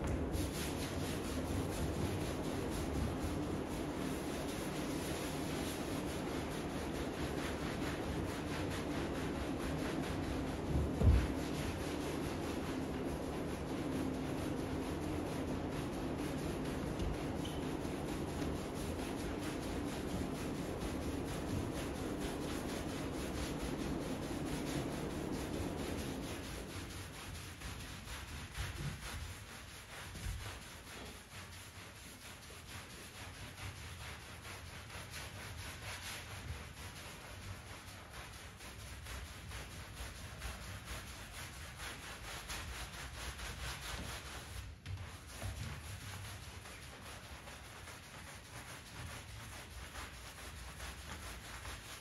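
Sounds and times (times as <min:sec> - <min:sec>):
brush scrubbing wet rug: 0:00.0 - 0:52.0.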